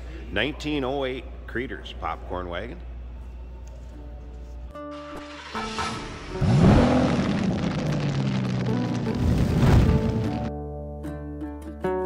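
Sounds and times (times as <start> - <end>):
soft background music: 0.4 - 6.6.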